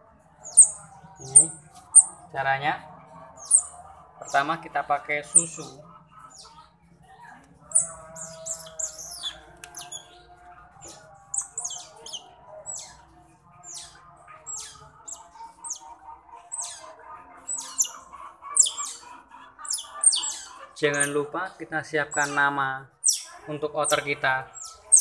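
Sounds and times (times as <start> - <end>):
baby otter squeaking: 0.4 - 2.2, 3.4 - 3.8, 5.2 - 6.7, 7.7 - 10.2, 11.3 - 13.0, 13.6 - 15.9, 16.5 - 21.2, 23.0 - 23.4, 24.5 - 25.0.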